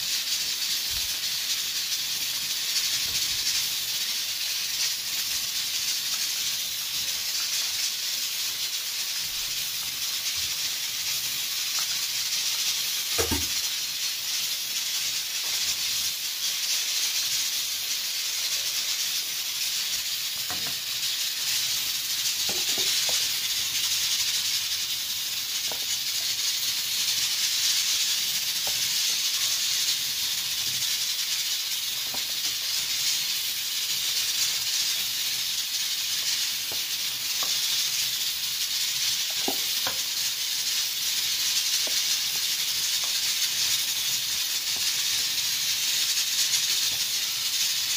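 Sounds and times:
food deep-frying in oil: 0.0s - 47.9s
sharp knock: 13.2s - 13.5s.

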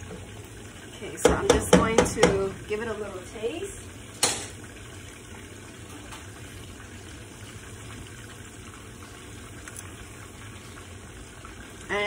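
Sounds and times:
meat sizzling in a pan: 0.0s - 12.0s.

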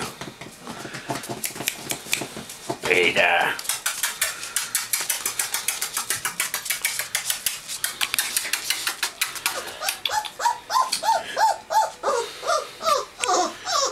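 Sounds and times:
puppy claws clicking on floor: 0.1s - 11.0s
puppy whimpering yelps: 9.5s - 13.9s.

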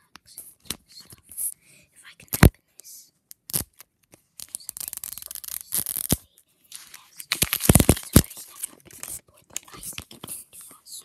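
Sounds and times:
crackling handling noise: 3.3s - 10.8s.

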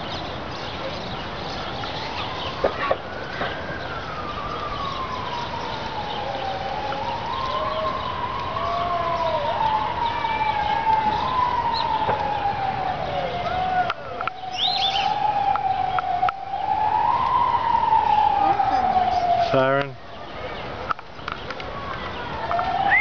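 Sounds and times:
emergency siren wailing: 0.0s - 20.8s, 21.6s - 23.0s.

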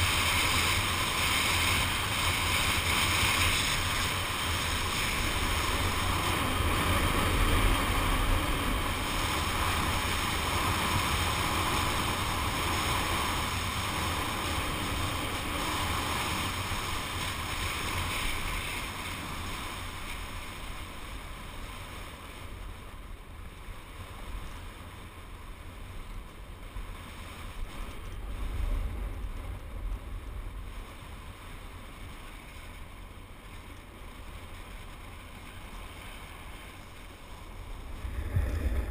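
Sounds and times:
skis sliding on snow: 0.0s - 22.6s, 26.4s - 38.9s
wind buffeting microphone: 0.0s - 23.9s, 25.5s - 38.9s.

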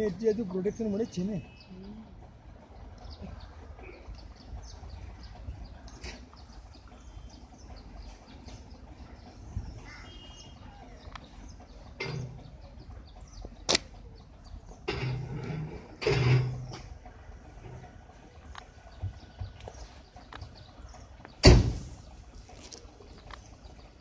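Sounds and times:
sharp click: 13.7s - 13.9s.

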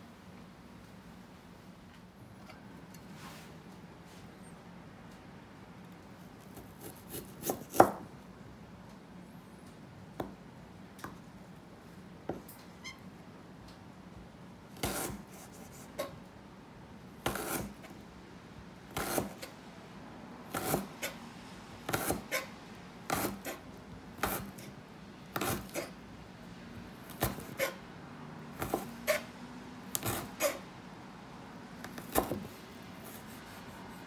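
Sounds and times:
knife slicing on cutting board: 14.8s - 15.2s, 17.3s - 17.7s, 25.4s - 25.9s, 29.9s - 30.6s.

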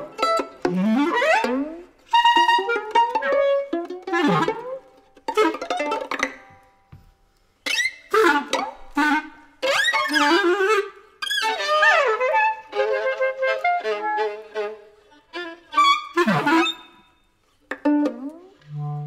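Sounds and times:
clarinet: 0.0s - 6.7s, 7.6s - 19.0s
violin: 0.0s - 19.0s.

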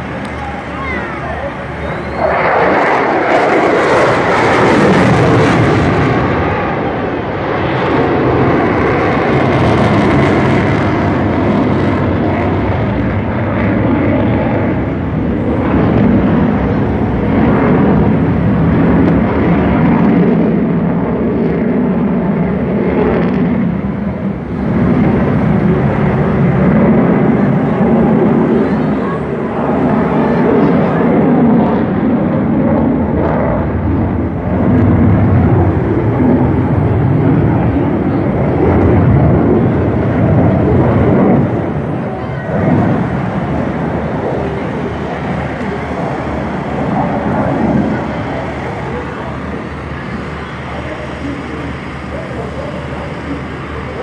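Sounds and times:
aircraft rumble: 0.0s - 54.0s
airplane engine in flight: 0.0s - 54.0s
crowd voices: 0.0s - 54.0s.

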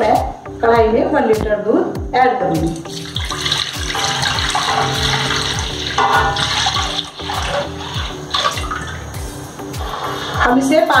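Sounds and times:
background music with drum beat: 0.0s - 11.0s
milk pouring and splashing: 2.8s - 9.1s.

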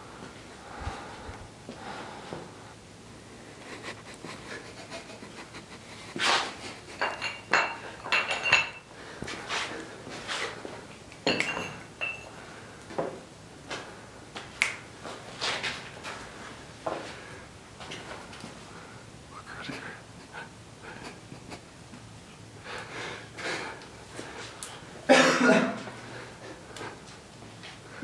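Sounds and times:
metal horseshoe knocks and clinks: 7.0s - 8.9s, 11.2s - 12.3s.

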